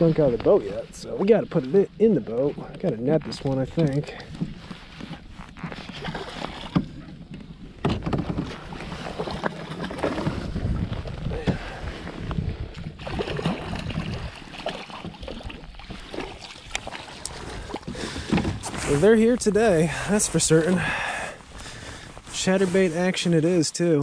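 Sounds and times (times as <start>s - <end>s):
water splashing and sloshing: 0.0s - 23.2s
wind rumble on microphone: 4.4s - 14.6s.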